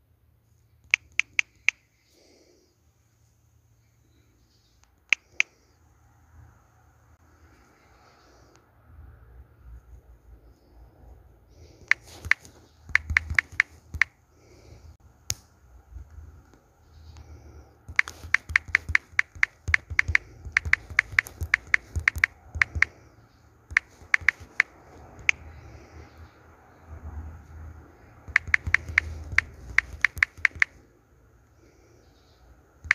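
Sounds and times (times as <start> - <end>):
sharp bright clicks: 0.9 - 1.8, 11.8 - 14.2, 17.9 - 23.0, 23.7 - 25.4, 28.3 - 30.8.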